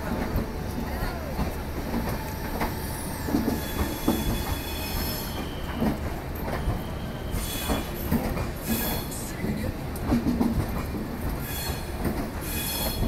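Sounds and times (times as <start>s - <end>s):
wheel-on-rail rumble: 0.0s - 13.0s
high wheel squeal: 2.3s - 6.0s, 6.6s - 8.0s, 11.4s - 13.0s.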